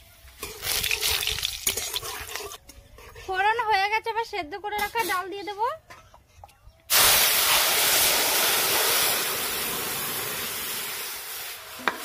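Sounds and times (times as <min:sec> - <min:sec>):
sizzle and hiss of steam: 0:06.9 - 0:12.0.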